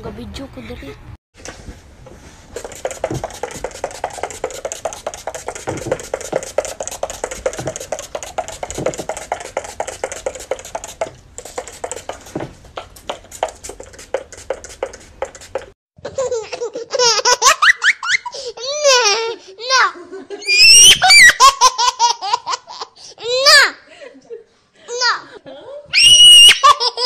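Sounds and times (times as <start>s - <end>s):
plastic container rattling: 2.5s - 10.8s.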